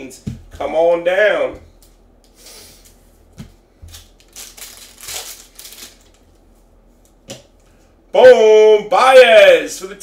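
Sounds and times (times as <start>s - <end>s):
plastic wrappers crinkling: 3.8s - 6.4s.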